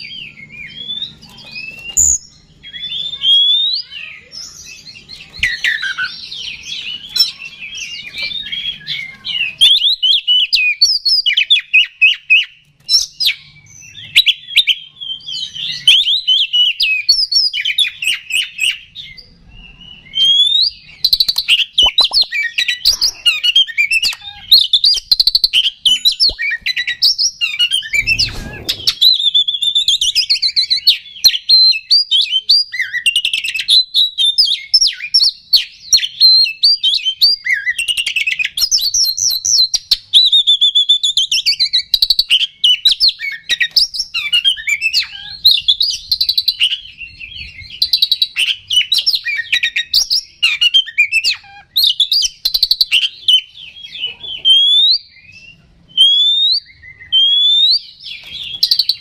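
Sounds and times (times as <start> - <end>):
bird singing whistles and trills: 0.0 - 59.0.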